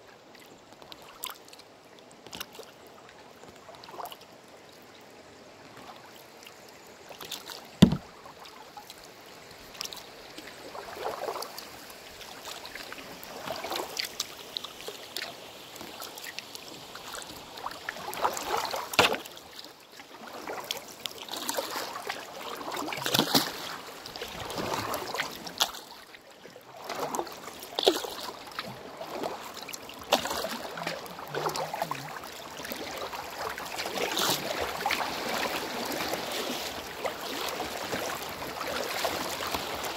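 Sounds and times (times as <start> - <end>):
rushing water: 0.0 - 39.9
water lapping against canoe: 0.1 - 39.9
knock on boat: 7.8 - 8.1.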